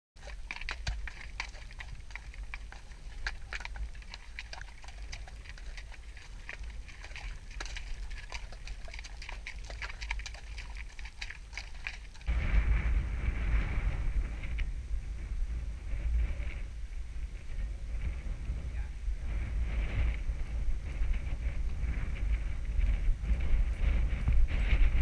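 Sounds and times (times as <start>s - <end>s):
hooves clicking on stones: 0.2s - 12.4s
low microphone rumble: 0.2s - 25.0s.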